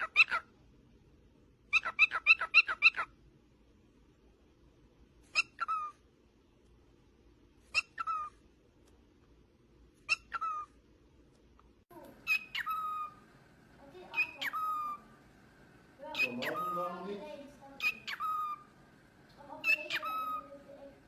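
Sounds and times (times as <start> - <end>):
cockatiel calling: 0.0 - 0.4, 1.7 - 3.1, 5.3 - 6.0, 7.7 - 8.4, 12.2 - 13.4, 14.0 - 15.2, 16.0 - 18.9, 19.6 - 21.0.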